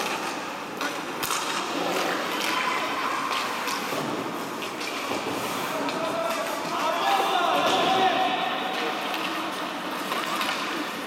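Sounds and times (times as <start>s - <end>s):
skate blades scraping ice: 0.0s - 7.3s
hockey sticks and puck clacking: 0.0s - 11.0s.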